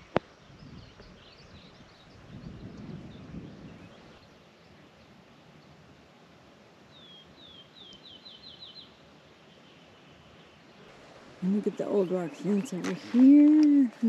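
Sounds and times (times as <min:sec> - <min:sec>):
faint outdoor background noise: 0:00.0 - 0:14.0
songbird whistling: 0:06.9 - 0:10.4.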